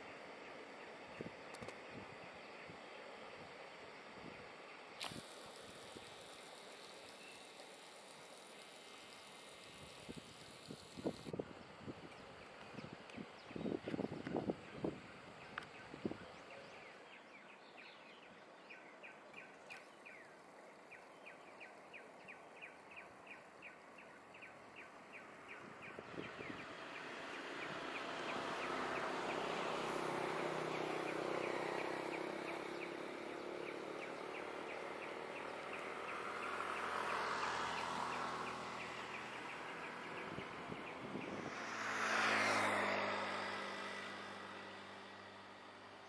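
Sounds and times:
even rushing noise: 0:39.4 - 0:44.8.

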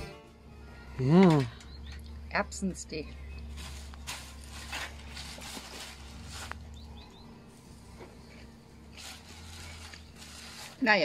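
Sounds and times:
low steady hum: 0:00.0 - 0:11.0
faint bird chirps: 0:00.6 - 0:03.6, 0:06.7 - 0:08.6
soft rustles: 0:03.4 - 0:06.9, 0:07.5 - 0:11.0.

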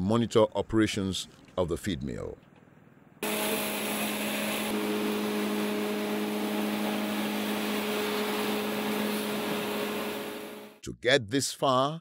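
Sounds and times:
mill machinery motor hum: 0:03.2 - 0:10.8.

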